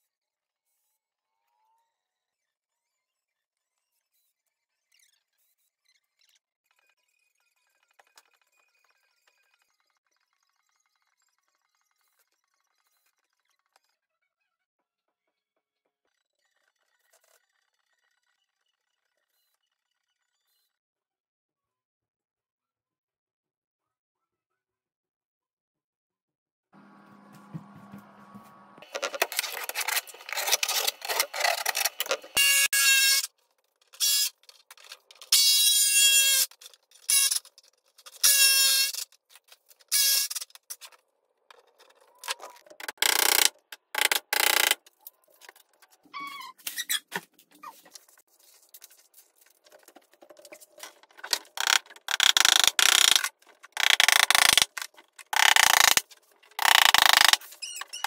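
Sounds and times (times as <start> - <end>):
motor whine: 26.8 - 28.8.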